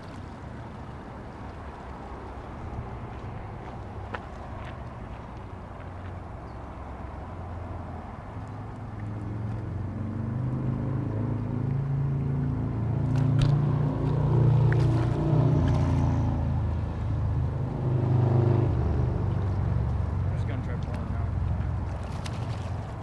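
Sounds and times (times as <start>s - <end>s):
fish splashing at surface: 13.0s - 16.0s, 21.9s - 23.0s.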